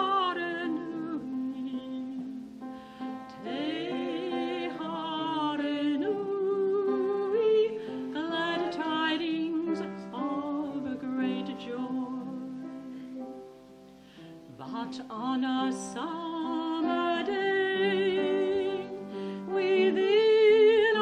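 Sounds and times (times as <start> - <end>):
women singing a carol: 0.0 - 2.6, 3.2 - 12.9, 14.6 - 21.0.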